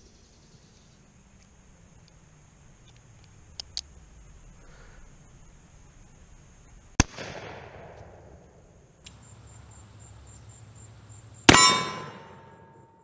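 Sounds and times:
revolver shot: 0:09.1 - 0:12.6
revolver shot echoing: 0:09.1 - 0:12.8
ringing tone: 0:11.5 - 0:13.0.

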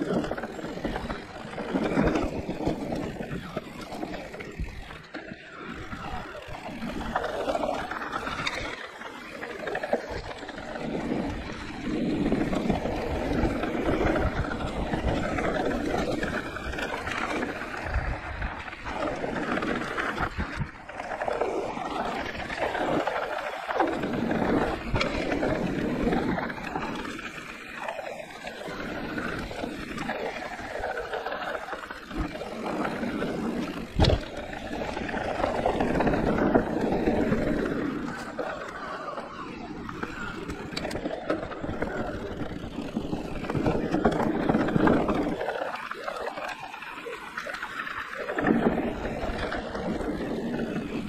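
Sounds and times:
tyres rumbling on dirt: 0:00.0 - 0:51.0
wind buffeting microphone: 0:10.1 - 0:27.2.

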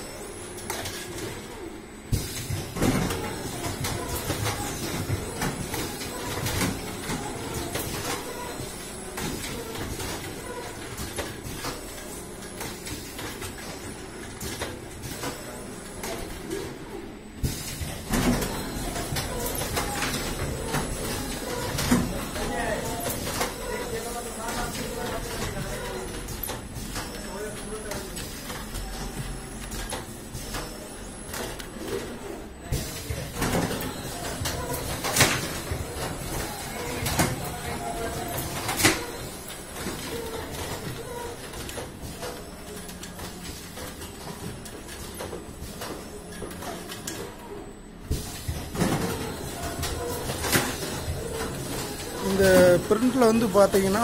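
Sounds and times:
printing machine humming: 0:00.0 - 0:54.0.

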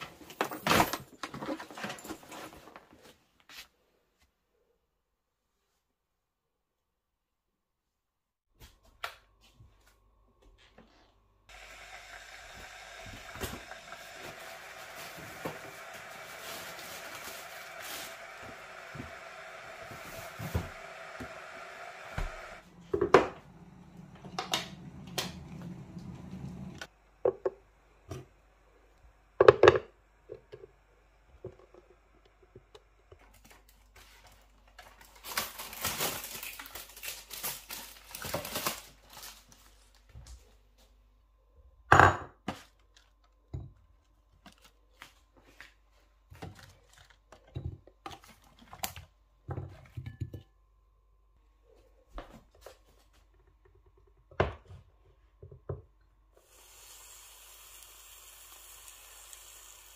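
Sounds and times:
plastic packaging crinkling: 0:33.3 - 0:40.1.

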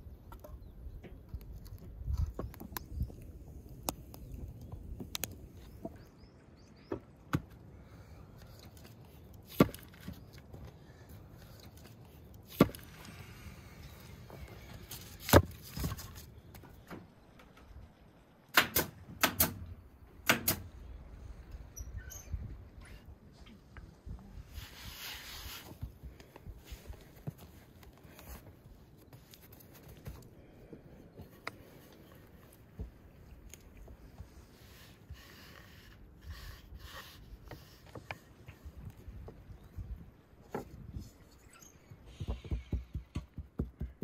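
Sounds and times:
wooden logs knocking together: 0:09.5 - 0:10.6, 0:12.5 - 0:12.9, 0:15.0 - 0:17.6.

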